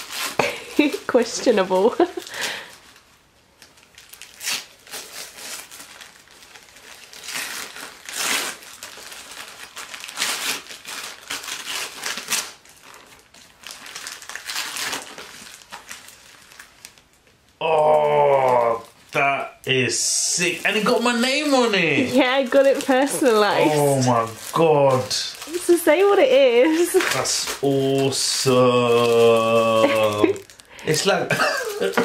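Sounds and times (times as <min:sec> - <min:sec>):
wrapping paper crinkling and tearing: 0:00.0 - 0:32.0.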